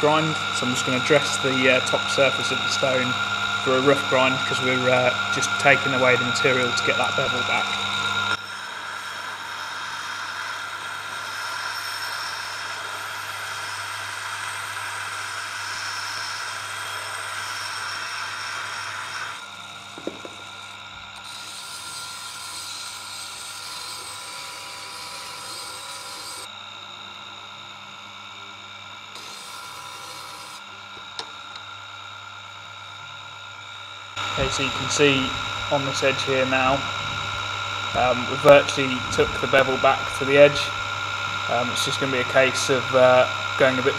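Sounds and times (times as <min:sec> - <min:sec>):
grader rasping on grindstone: 0:00.0 - 0:26.5, 0:29.2 - 0:30.6
sharpening machine motor hum: 0:00.0 - 0:43.9.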